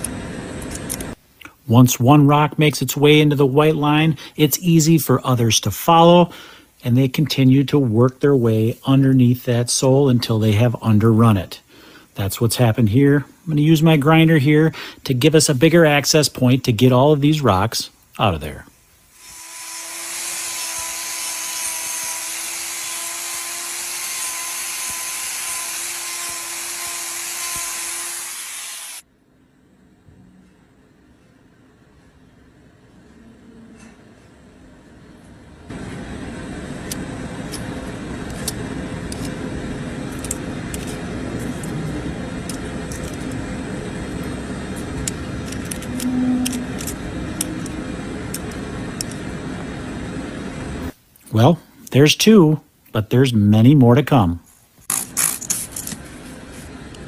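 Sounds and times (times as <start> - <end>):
angle grinder grinding hoof: 19.2 - 29.0, 45.4 - 48.6
short low hum: 35.7 - 51.0.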